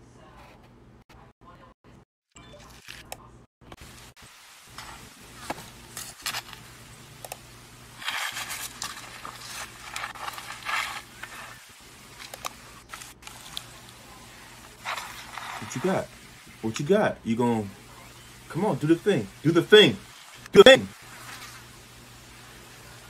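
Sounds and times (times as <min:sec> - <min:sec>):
low steady hum: 0:03.2 - 0:23.0
pineapple crunching underfoot: 0:08.0 - 0:11.6.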